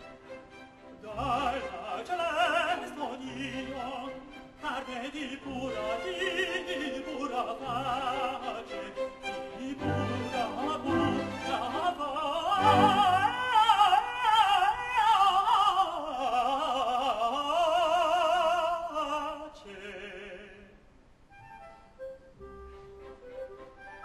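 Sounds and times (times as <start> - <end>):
orchestra playing: 0.0 - 14.4
woman and man singing opera: 1.0 - 20.7.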